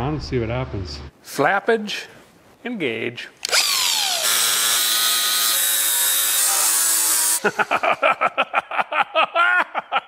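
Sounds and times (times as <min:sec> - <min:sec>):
angle grinder cutting steel: 0:03.5 - 0:07.4.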